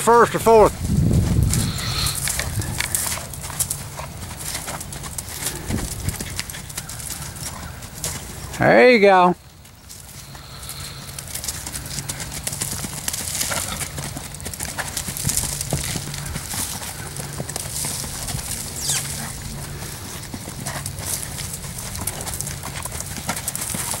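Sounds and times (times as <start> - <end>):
horse hoofbeats on dirt: 0.0 - 24.0.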